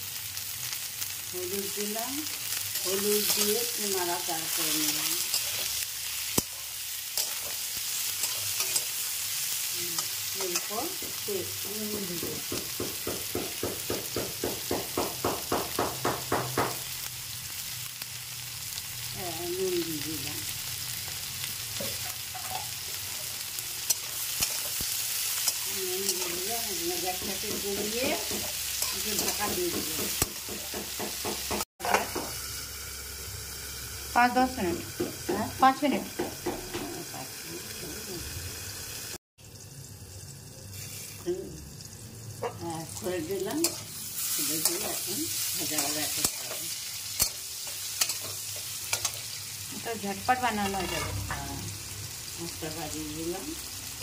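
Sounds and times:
vegetables sizzling in hot oil: 0:00.0 - 0:54.0
metal spatula scraping: 0:02.5 - 0:11.0, 0:21.7 - 0:30.7, 0:42.4 - 0:49.4, 0:50.4 - 0:51.4.

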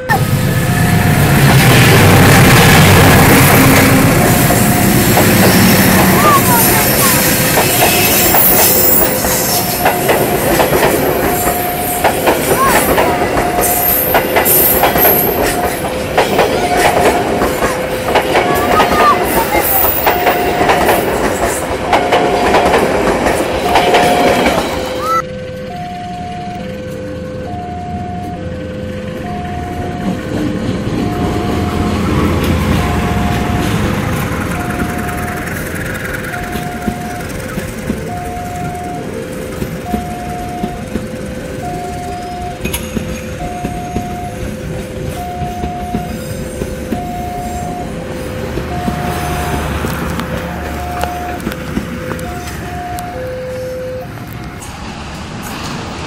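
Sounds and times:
train wheels clacking over rail joints: 0:01.1 - 0:25.0, 0:30.0 - 0:53.2
level crossing alarm two tones: 0:03.5 - 0:07.4, 0:23.8 - 0:30.4, 0:31.0 - 0:35.5, 0:36.3 - 0:39.2, 0:39.8 - 0:48.0, 0:48.6 - 0:49.6, 0:50.8 - 0:54.1
electronic two-note tone: 0:25.0 - 0:28.6.

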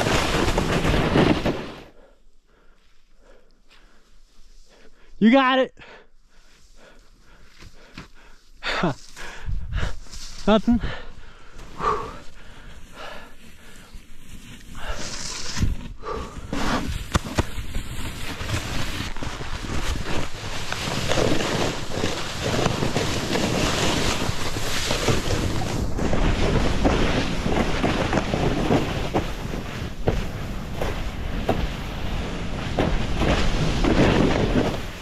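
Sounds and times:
snowboard scraping through powder: 0:00.0 - 0:02.0, 0:09.9 - 0:10.8, 0:11.6 - 0:35.0
wind rushing over microphone: 0:09.4 - 0:10.0.

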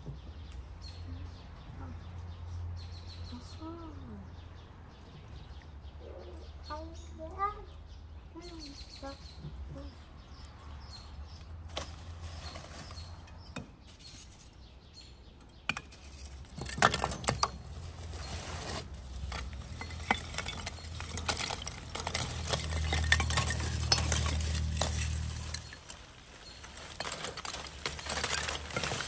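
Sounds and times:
metal utensils clinking on dishes: 0:19.4 - 0:25.9.

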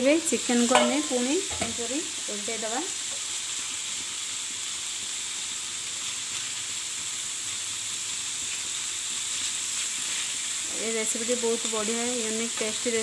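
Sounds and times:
chicken frying in hot oil: 0:00.0 - 0:13.0
metal spatula turning food: 0:00.5 - 0:01.9.

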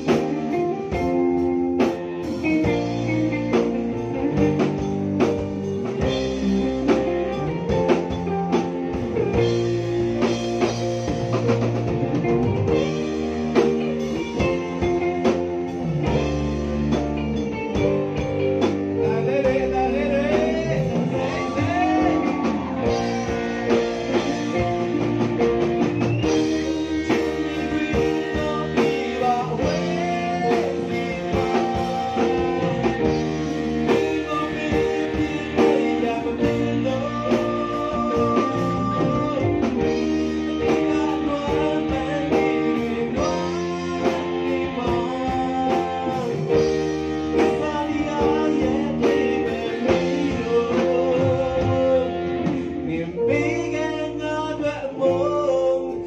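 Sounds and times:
bass guitar: 0:00.0 - 0:56.0
drum kit: 0:00.0 - 0:56.0
electric guitar: 0:00.0 - 0:56.0
man singing into a microphone: 0:01.8 - 0:16.3, 0:17.7 - 0:56.0.

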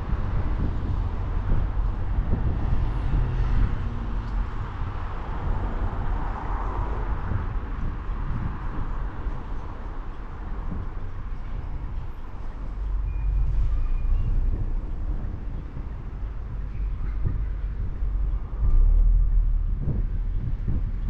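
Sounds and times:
tyre and engine noise: 0:00.0 - 0:21.0
wind rumble on microphone: 0:00.0 - 0:21.0.

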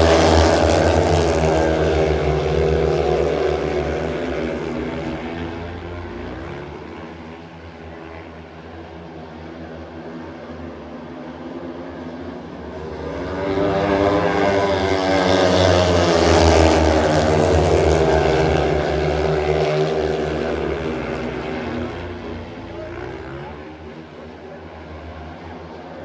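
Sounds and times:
motorcycles racing past: 0:00.0 - 0:08.4, 0:11.1 - 0:25.8.

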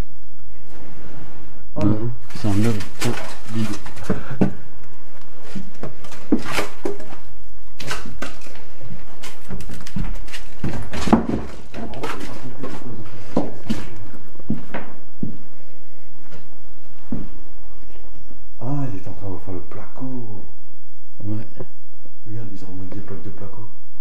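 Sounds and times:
handling knocks and scrapes: 0:05.4 - 0:14.9.

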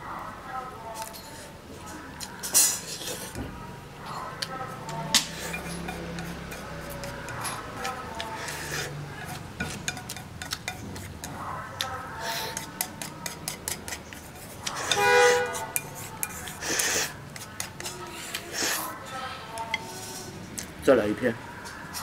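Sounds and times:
chopsticks clicking on ceramic bowl: 0:09.3 - 0:10.8.

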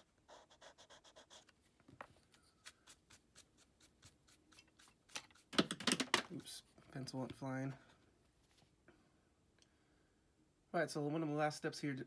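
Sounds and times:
pencil eraser rubbing on paper: 0:00.0 - 0:01.5, 0:02.5 - 0:05.5
hand brushing paper: 0:02.2 - 0:05.5.

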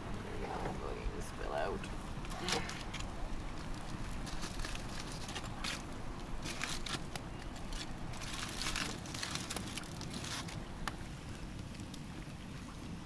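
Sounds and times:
steady low rumble: 0:00.0 - 0:12.4
wood fire crackling: 0:01.2 - 0:12.1.

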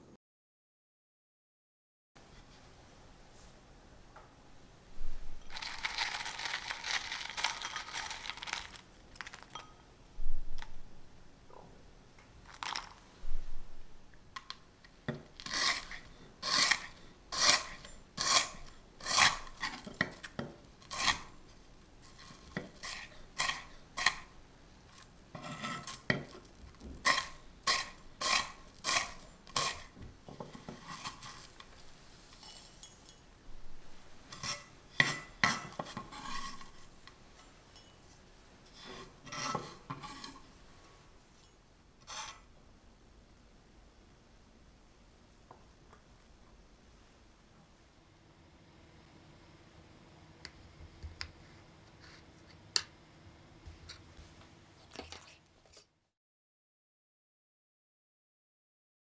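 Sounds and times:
dry fruit crackling in glass bowl: 0:05.4 - 0:09.8, 0:12.4 - 0:13.0.

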